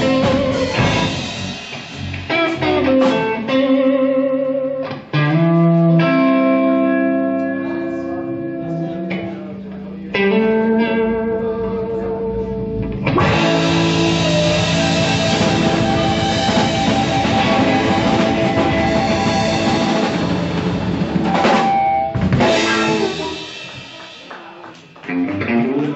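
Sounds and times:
drum kit: 0:00.0 - 0:04.2, 0:12.4 - 0:25.9
electric guitar: 0:00.0 - 0:25.9
keyboard: 0:07.2 - 0:23.6.

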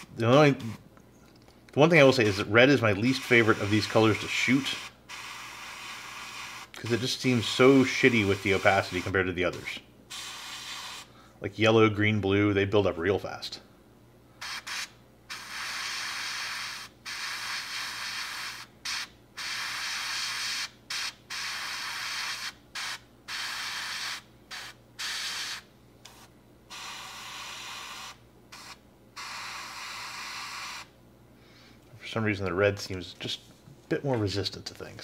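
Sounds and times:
airbrush spraying bursts: 0:00.0 - 0:00.8, 0:02.0 - 0:11.1, 0:14.4 - 0:30.9.

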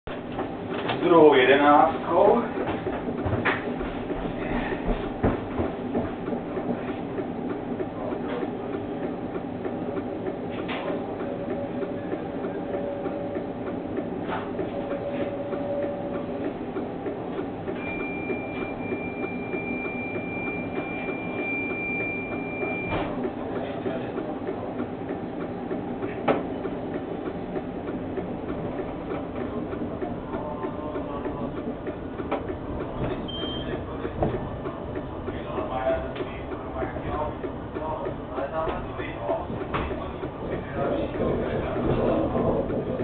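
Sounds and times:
tram equipment hum: 0:00.1 - 0:43.0
high steady beep: 0:17.8 - 0:23.1.

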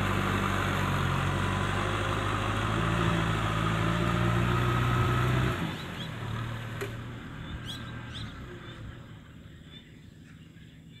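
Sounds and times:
tractor diesel engine under load: 0:00.0 - 0:09.6
bird chirps: 0:05.7 - 0:06.2, 0:07.4 - 0:11.0.

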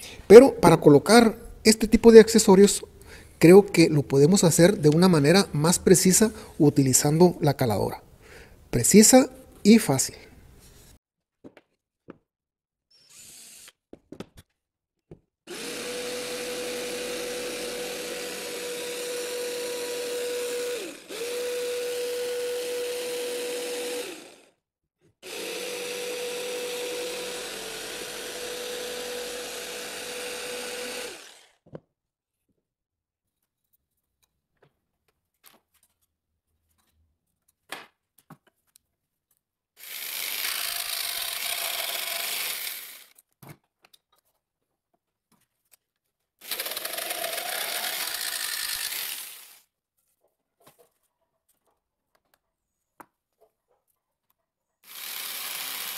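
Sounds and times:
jigsaw cutting drywall: 0:12.9 - 0:13.9, 0:15.5 - 0:24.6, 0:25.2 - 0:31.6, 0:39.8 - 0:43.2, 0:46.4 - 0:49.7, 0:54.8 - 0:55.9.

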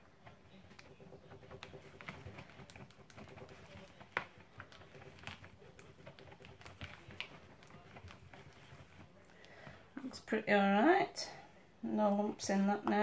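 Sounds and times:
spatula scraping plastic bowl: 0:00.0 - 0:09.8.

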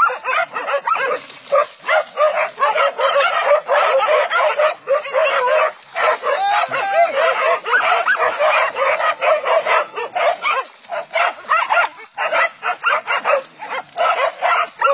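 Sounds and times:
dogs barking and yelping: 0:00.0 - 0:14.9.

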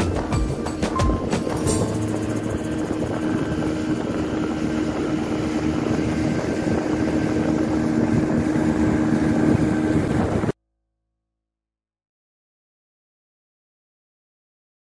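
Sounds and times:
motorboat engine running: 0:00.0 - 0:10.6
rushing water: 0:00.0 - 0:10.6
wind: 0:00.0 - 0:10.6.

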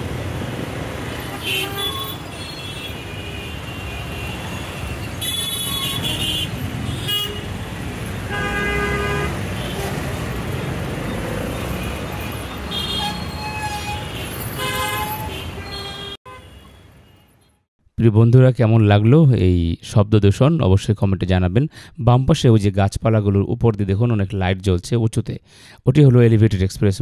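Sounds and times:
traffic engines rumbling: 0:00.0 - 0:17.6
car horns honking: 0:01.2 - 0:07.6, 0:08.2 - 0:17.6.

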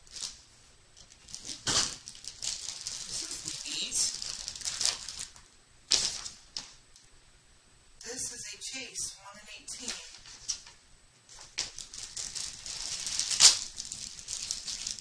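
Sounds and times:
toy packaging crinkling and tearing: 0:01.0 - 0:05.4, 0:11.4 - 0:15.0.

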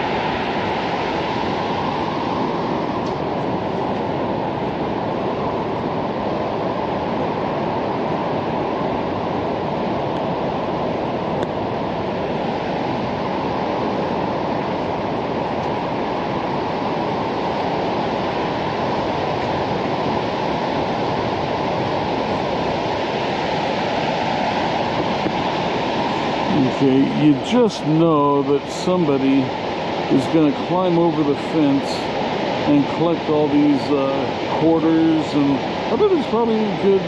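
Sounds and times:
waterfall rushing: 0:09.4 - 0:37.0.

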